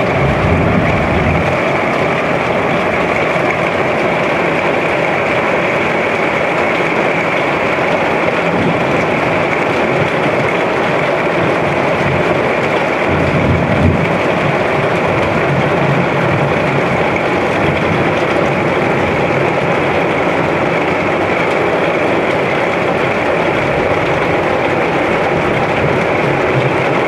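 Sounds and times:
rain: 0:00.0 - 0:27.0.

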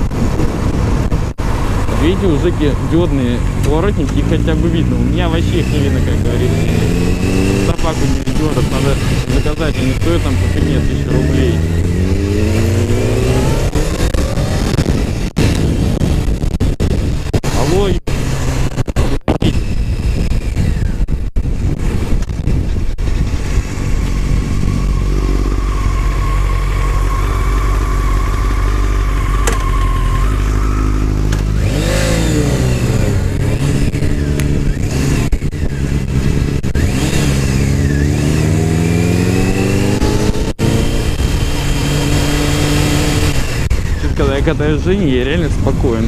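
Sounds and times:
motorcycle engine accelerating: 0:00.0 - 0:46.0
wind rumble on microphone: 0:00.0 - 0:46.0.

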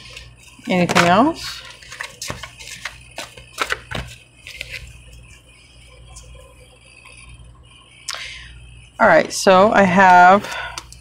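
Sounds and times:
cards being shuffled: 0:00.9 - 0:04.9.

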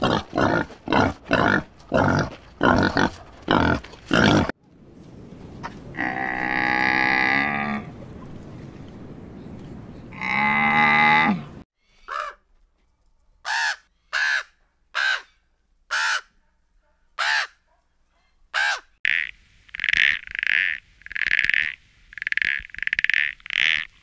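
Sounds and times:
crow cawing: 0:12.1 - 0:12.4
toad croaking: 0:19.0 - 0:24.0.

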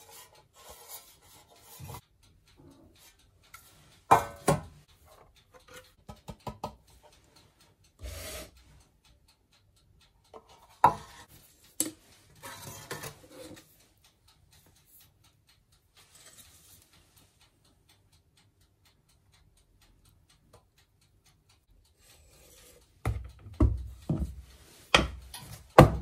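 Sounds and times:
cookware scraping: 0:00.0 - 0:02.0, 0:08.0 - 0:08.5, 0:12.4 - 0:13.6, 0:22.0 - 0:23.2.

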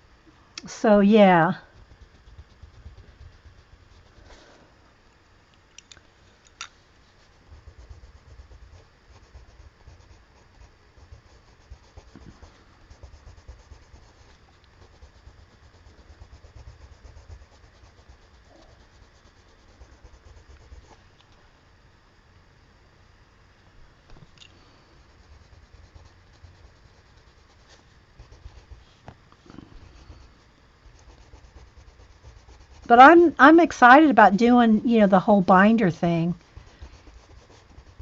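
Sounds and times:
colored pencil scratching paper: 0:01.4 - 0:04.5, 0:07.1 - 0:21.0, 0:24.8 - 0:33.0, 0:36.0 - 0:38.0.

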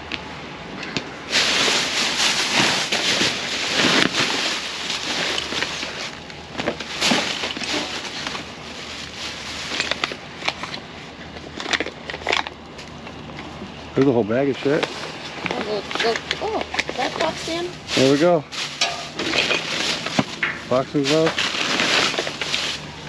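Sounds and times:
plastic bags crinkling: 0:01.3 - 0:10.8, 0:14.7 - 0:23.0.

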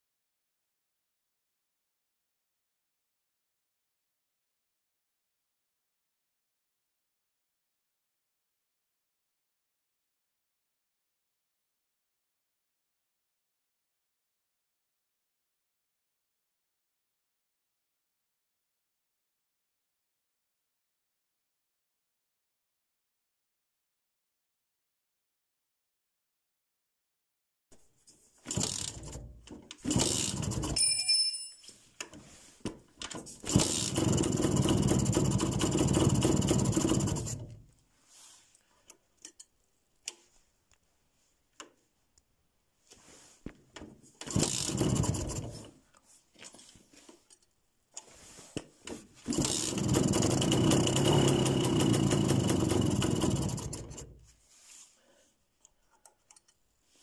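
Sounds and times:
motorcycle engine starting and running: 0:28.5 - 0:30.8, 0:33.5 - 0:37.6, 0:44.2 - 0:45.7, 0:49.3 - 0:54.3.

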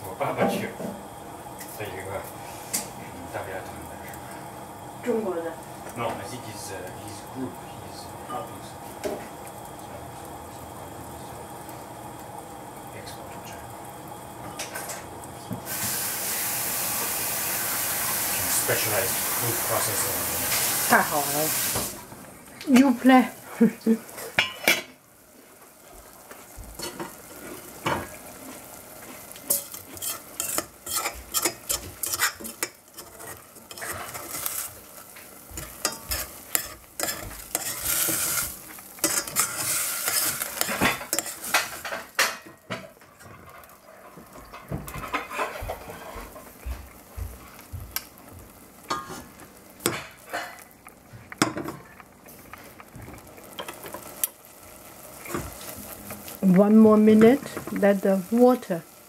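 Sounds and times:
water sizzling in pan: 0:00.0 - 0:59.0
metal spoon scraping saucepan: 0:29.5 - 0:34.7, 0:35.6 - 0:41.9.

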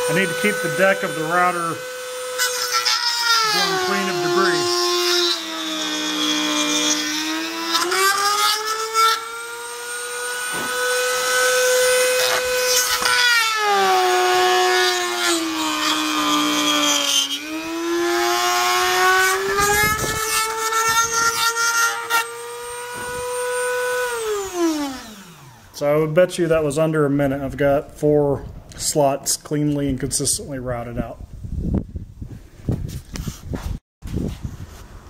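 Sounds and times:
rotary tool whining: 0:00.0 - 0:25.8.

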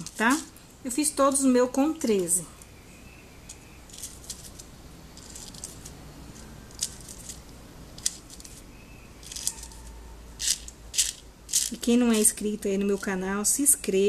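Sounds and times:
plastic beads clicking: 0:03.4 - 0:08.6, 0:09.2 - 0:12.5.

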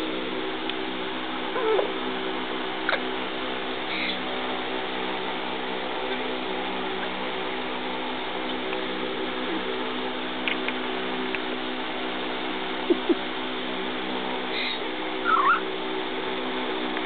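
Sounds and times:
steady background hum: 0:00.0 - 0:17.0
parrot squeak: 0:03.9 - 0:04.2, 0:14.6 - 0:15.6
faint high chirp: 0:14.6 - 0:15.6.

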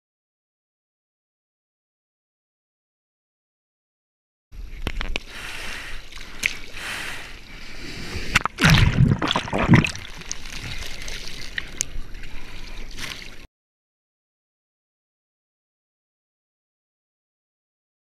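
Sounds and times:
seawater splashing and sloshing: 0:05.3 - 0:13.5
wave breaking: 0:07.8 - 0:10.8.

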